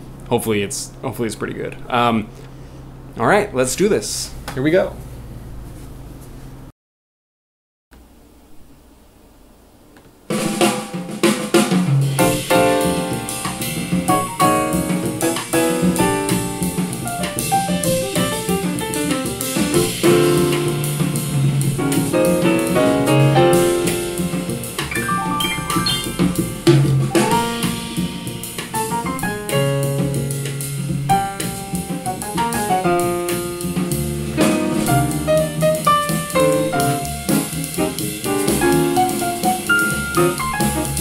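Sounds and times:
jazzy song over small speakers: 10.5 - 41.0.

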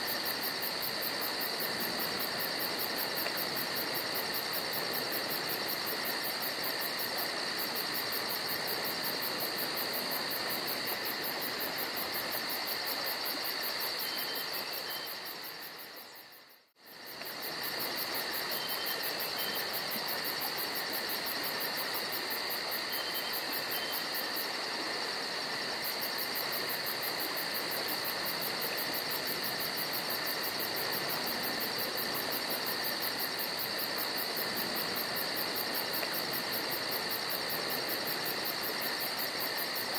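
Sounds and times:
background hiss: 0.0 - 39.9
insects trilling: 0.0 - 39.9.

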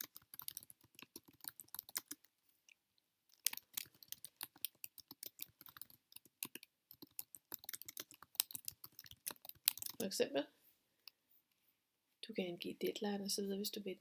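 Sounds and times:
typing on computer keyboard: 0.0 - 2.3, 3.3 - 10.0.

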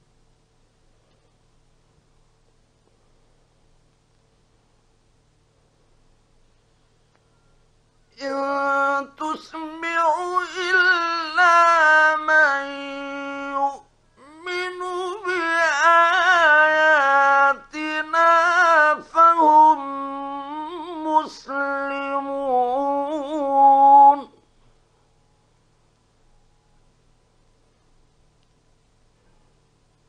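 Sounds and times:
man chanting recitation: 8.2 - 24.4.

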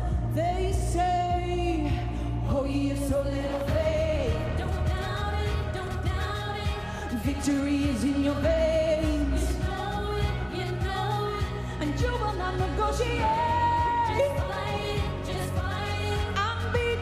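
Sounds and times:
band with low bass: 0.0 - 17.0
woman singing into microphone: 0.0 - 17.0.

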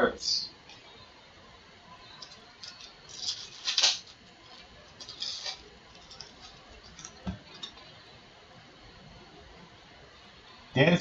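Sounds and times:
foil wrapper crinkling and tearing: 2.2 - 7.7.

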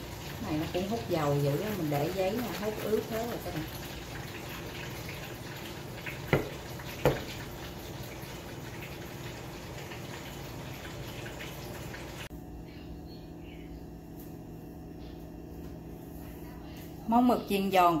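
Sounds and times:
plate knocking on tabletop: 6.3 - 7.3.

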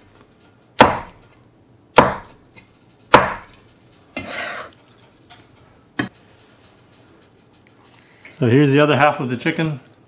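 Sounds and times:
knife chopping on cutting board: 0.8 - 1.2, 2.0 - 2.4, 3.1 - 3.6
knife scraping: 3.5 - 5.6.

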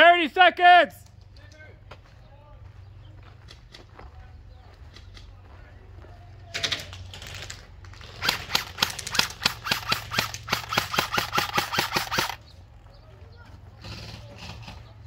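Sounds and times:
airsoft rifle firing: 8.0 - 12.4.

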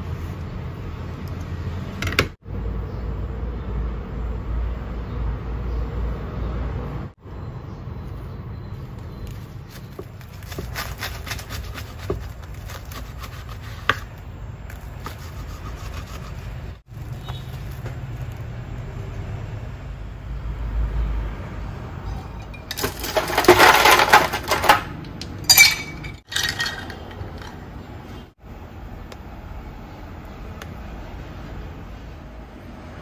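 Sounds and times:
sharp clatter: 22.4 - 27.6.

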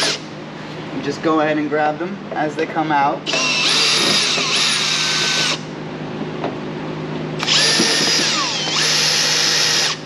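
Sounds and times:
cordless drill whining: 3.3 - 5.6, 7.4 - 10.0.

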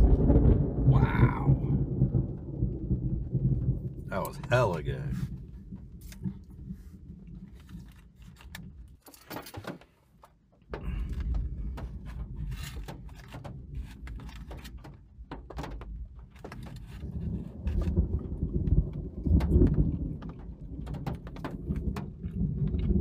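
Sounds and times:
loud steady low rumble: 0.0 - 8.0
wind and rain rumble: 0.0 - 23.0
clicks and knocks in car: 7.4 - 23.0.

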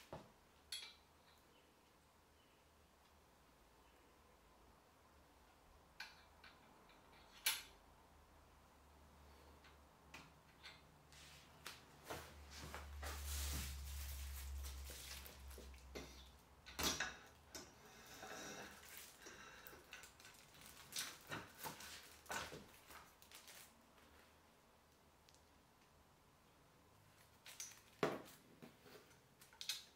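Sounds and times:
rubbing and rustling: 11.1 - 15.9.

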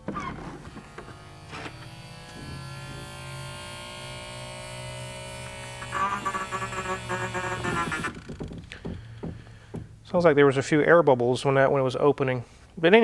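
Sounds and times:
pump motor humming: 0.7 - 9.9.

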